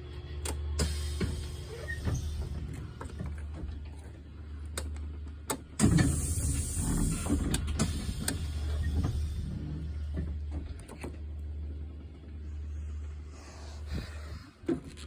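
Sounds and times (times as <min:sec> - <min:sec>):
steady low hum: 0:00.0 - 0:15.0
bus door mechanism running: 0:00.4 - 0:04.1, 0:04.7 - 0:11.5
pneumatic hiss: 0:00.8 - 0:03.0, 0:05.8 - 0:10.1.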